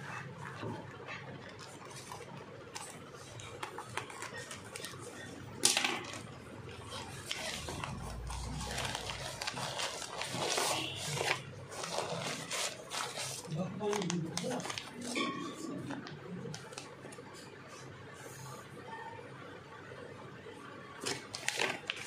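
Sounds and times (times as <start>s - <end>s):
plastic bag crinkling: 1.0s - 16.9s, 21.0s - 22.0s
plastic bag ripping: 5.6s - 15.4s, 21.0s - 22.0s.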